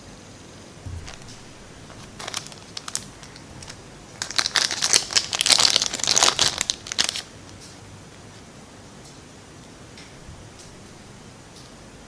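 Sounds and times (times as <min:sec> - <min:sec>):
plastic bag crinkling: 0:00.9 - 0:07.3.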